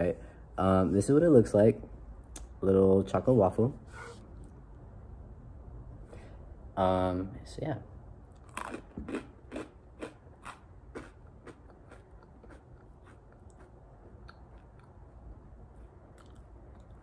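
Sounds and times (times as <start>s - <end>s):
cereal crunching while chewed: 8.4s - 14.9s.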